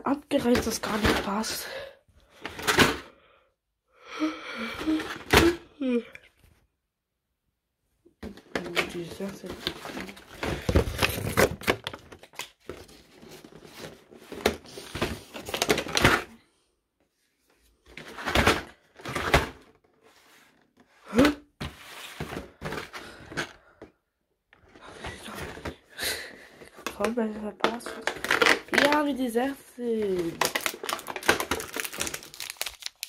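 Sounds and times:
cardboard rustling and scraping: 8.5 - 16.3, 17.9 - 21.0, 21.6 - 23.0.

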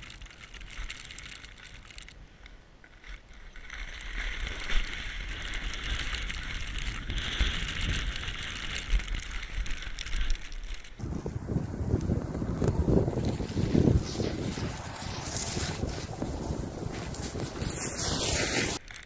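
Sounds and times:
steady hiss: 11.0 - 18.8
wind buffeting microphone: 11.0 - 18.8.

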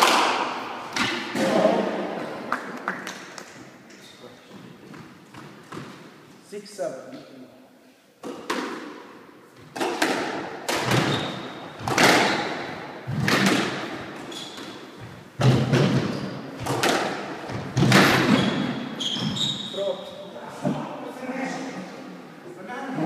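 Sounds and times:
squash ball impacts: 0.0 - 3.5, 8.2 - 19.3.

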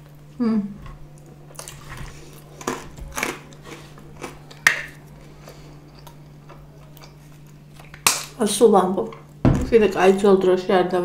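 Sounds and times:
chewing pizza with wet mouth sounds: 0.8 - 8.3.

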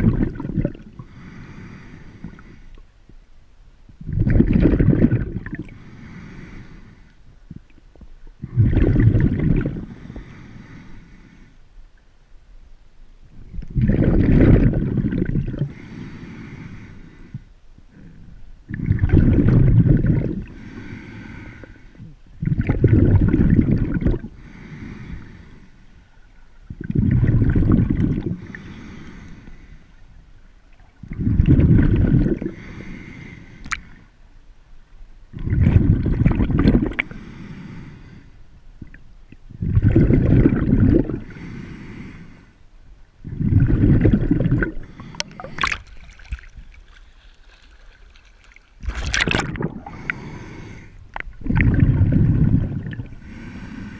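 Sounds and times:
breathing through a snorkel: 0.9 - 2.8, 5.7 - 7.2, 8.6 - 11.6, 15.6 - 18.4, 19.9 - 22.2, 24.3 - 26.1, 26.8 - 30.0, 31.1 - 34.1, 37.0 - 38.4, 39.6 - 42.6, 43.2 - 51.2, 52.1 - 53.9.

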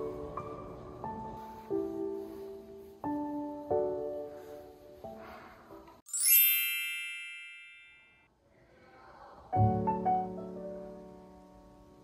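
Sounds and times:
soft piano music: 0.0 - 7.6, 9.5 - 12.0
bright sparkling chime: 6.1 - 8.3.

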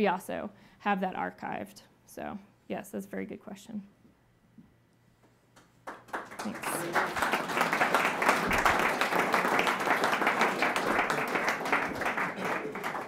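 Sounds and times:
audience applauding: 5.8 - 13.0.

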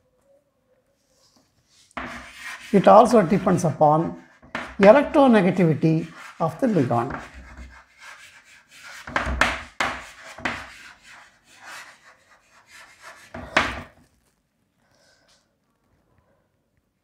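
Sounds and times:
pen scratching on writing surface: 1.7 - 13.9.

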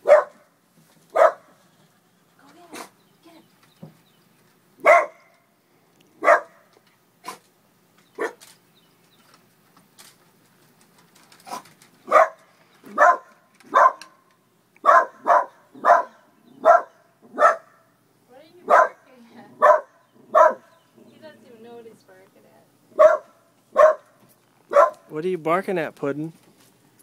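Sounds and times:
dog barking: 0.0 - 0.5, 1.1 - 1.5, 2.7 - 2.9, 4.8 - 5.3, 6.2 - 7.4, 8.2 - 8.4, 11.5 - 14.2, 14.8 - 17.9, 18.6 - 19.0, 19.6 - 20.8, 22.9 - 25.1.

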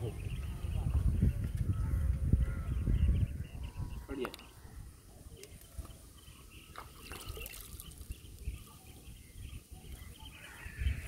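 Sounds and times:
water dripping and trickling: 6.7 - 8.2.

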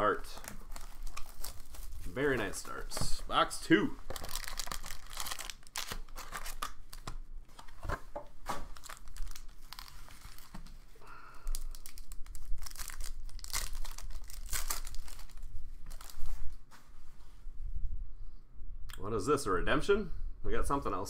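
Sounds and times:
foil wrapper tearing and crinkling: 0.1 - 3.0, 4.0 - 7.1, 8.6 - 10.6, 11.4 - 16.2.

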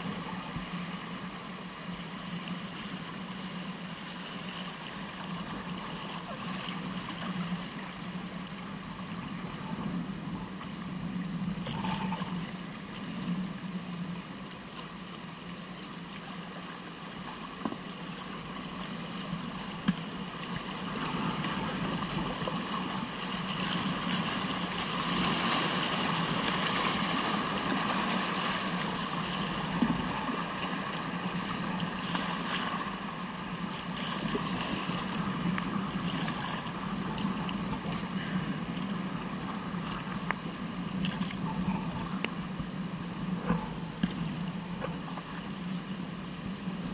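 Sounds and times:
river water rushing: 14.4 - 43.9.

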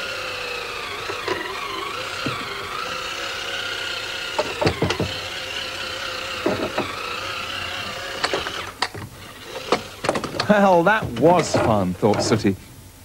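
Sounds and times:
toy car motor whine: 0.0 - 10.3
short knocks and clatters: 8.2 - 12.4.

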